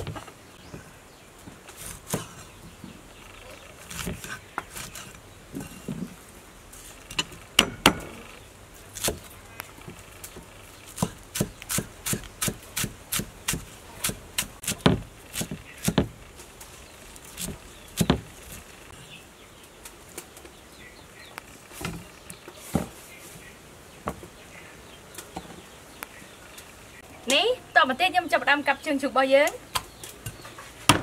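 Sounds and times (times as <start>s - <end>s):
cleaver chopping on wooden board: 11.0s - 16.2s, 17.4s - 18.3s.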